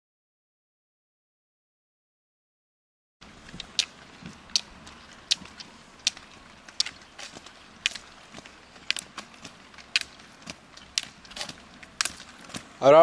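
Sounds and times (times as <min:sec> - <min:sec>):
ski pole tips clicking on asphalt: 0:03.3 - 0:12.9
faint ticks: 0:03.4 - 0:12.6.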